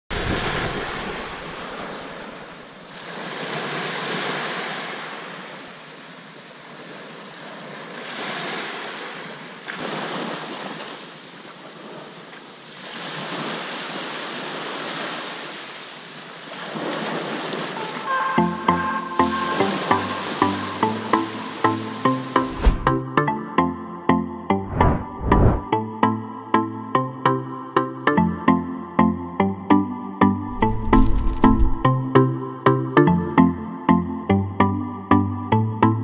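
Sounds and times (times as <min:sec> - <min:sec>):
waves breaking on beach: 0:00.1 - 0:23.0, 0:30.5 - 0:32.0.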